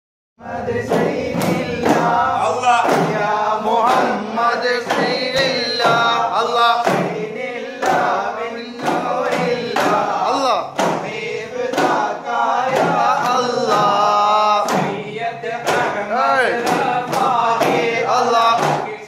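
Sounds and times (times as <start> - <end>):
frame drums beating: 0.4 - 19.0
men singing in chorus: 0.4 - 19.0.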